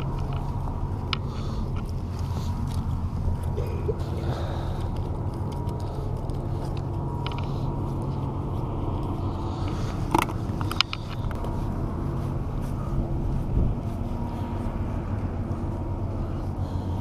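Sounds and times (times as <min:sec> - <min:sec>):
wind rumbling on microphone: 0:00.0 - 0:17.0
fishing gear clicks: 0:08.9 - 0:11.5.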